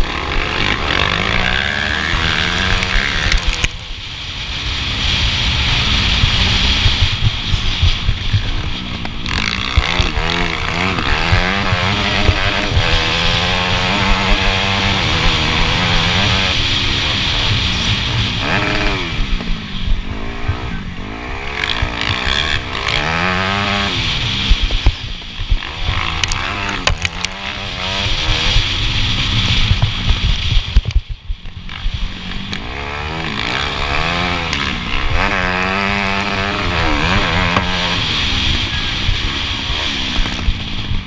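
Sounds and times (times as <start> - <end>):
motocross bike engine revving: 0.0 - 41.0
knocks over rough track: 21.6 - 32.7, 33.3 - 41.0.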